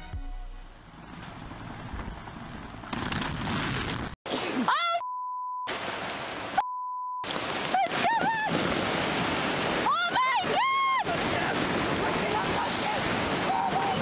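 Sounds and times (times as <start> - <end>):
censor bleeps: 5.0 - 5.8, 6.6 - 7.3.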